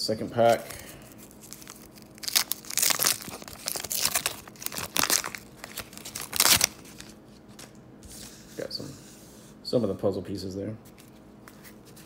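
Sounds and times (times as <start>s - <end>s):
paper wrapper crackling: 1.2s - 7.7s
paper ripping: 1.3s - 7.7s.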